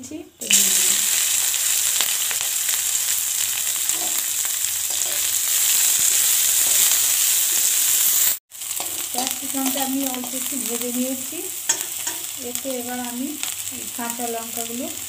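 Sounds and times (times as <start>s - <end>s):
vegetables sizzling in hot oil: 0.4s - 15.0s
metal spatula stirring: 3.8s - 7.0s, 8.6s - 10.5s, 11.7s - 12.4s.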